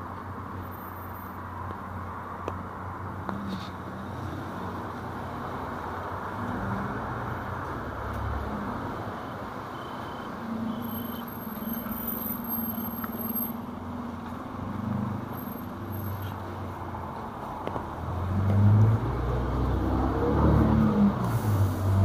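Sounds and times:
deep vehicle engine: 0:12.9 - 0:22.0
tyres hissing on wet road: 0:18.3 - 0:22.0.

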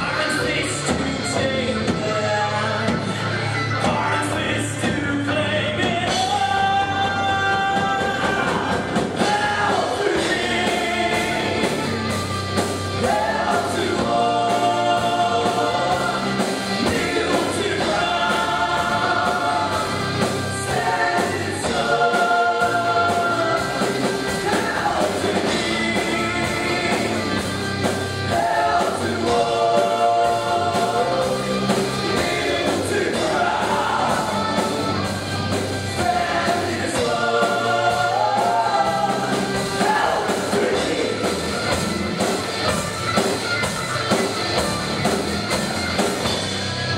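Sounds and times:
bass guitar: 0:00.0 - 0:46.9
drum kit: 0:00.0 - 0:46.9
electric guitars: 0:00.0 - 0:46.9.

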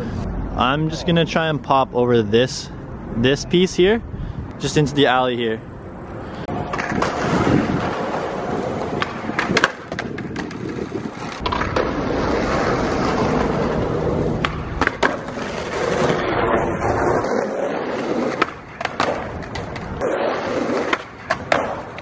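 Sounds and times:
skateboard wheels rolling on pavement: 0:00.0 - 0:22.0
skateboard clacks: 0:06.5 - 0:22.0.

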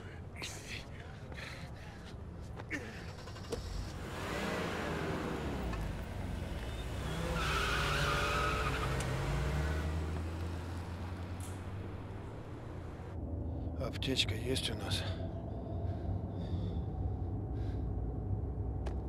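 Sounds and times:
car engine revving: 0:03.3 - 0:13.2
tyres squealing: 0:06.2 - 0:13.0.

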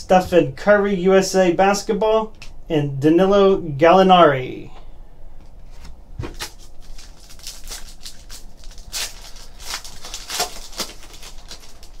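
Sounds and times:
foil wrapper crinkling: 0:06.2 - 0:12.0.

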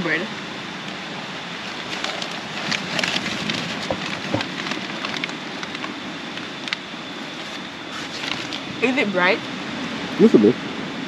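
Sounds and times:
paper bag crinkling: 0:01.6 - 0:06.0.

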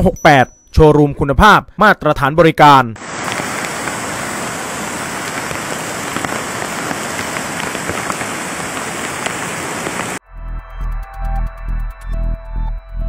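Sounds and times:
fast-flowing river rushing: 0:03.0 - 0:10.2
rain falling: 0:03.0 - 0:10.2.

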